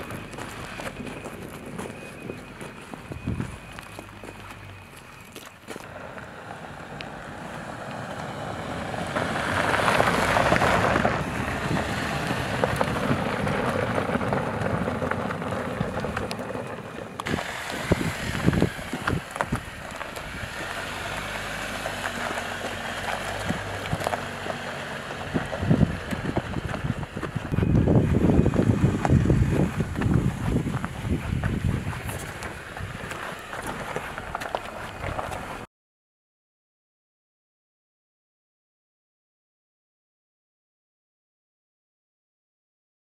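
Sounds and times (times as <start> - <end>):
wind noise: 0.0 - 4.8, 8.3 - 35.7
tyres crunching on loose stones: 0.0 - 6.3, 9.1 - 35.7
car engine: 0.0 - 35.7.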